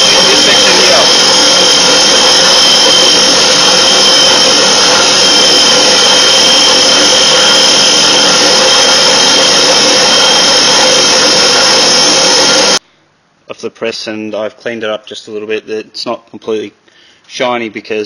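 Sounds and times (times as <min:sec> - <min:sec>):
drill press whirring grind: 0:00.0 - 0:12.8.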